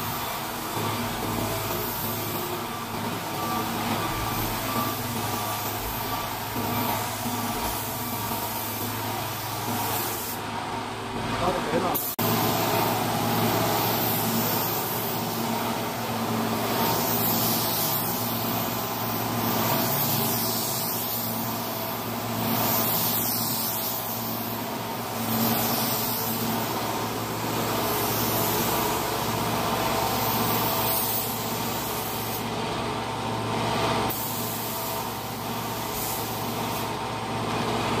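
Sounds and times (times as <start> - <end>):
paint spray gun hissing: 0.1 - 10.4, 11.9 - 32.5, 34.1 - 37.0.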